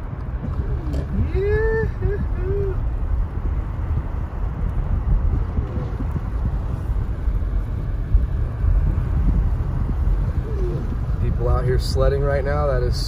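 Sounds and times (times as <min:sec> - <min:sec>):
car tyres and engine rumble: 0:00.0 - 0:13.0.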